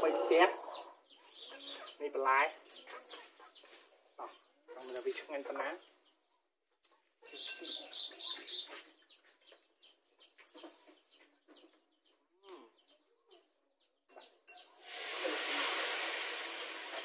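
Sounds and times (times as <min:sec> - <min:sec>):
chickens clucking and peeping: 0:00.0 - 0:17.0
loud steady hiss: 0:14.8 - 0:17.0.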